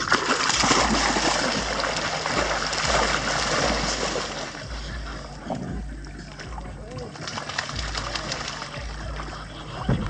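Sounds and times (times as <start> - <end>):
dogs splashing through water: 0.0 - 10.0.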